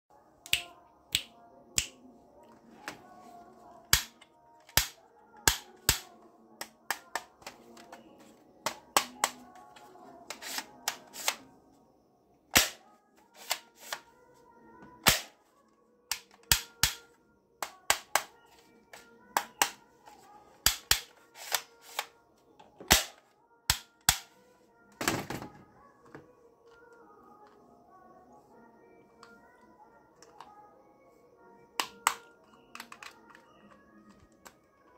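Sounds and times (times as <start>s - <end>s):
faint music: 0.1s - 34.9s
plastic toy gun clicks: 3.9s - 7.5s, 12.6s - 12.8s, 13.4s - 14.0s, 15.0s - 15.4s, 16.1s - 18.3s, 20.6s - 22.1s, 22.9s - 24.3s.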